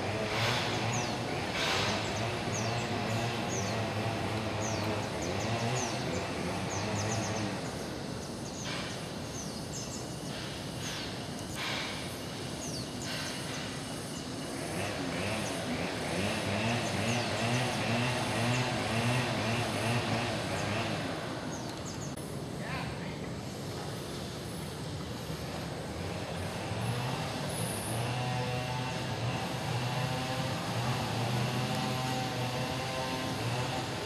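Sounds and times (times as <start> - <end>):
distant traffic hum: 0.0 - 34.0
small birds chirping: 0.1 - 24.6.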